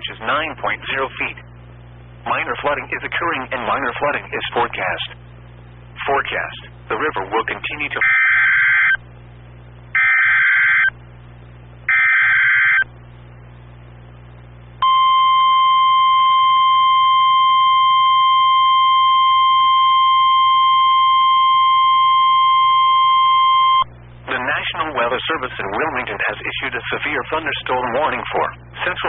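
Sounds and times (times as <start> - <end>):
steady warning alarm tone: 8.0 - 9.0, 10.0 - 11.0, 11.9 - 12.9, 14.8 - 23.9.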